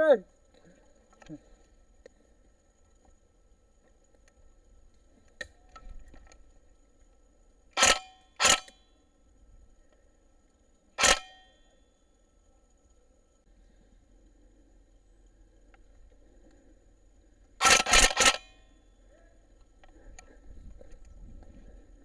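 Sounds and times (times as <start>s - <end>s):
gunshots with metallic ring: 7.8s - 8.7s, 11.0s - 11.5s, 17.6s - 18.6s.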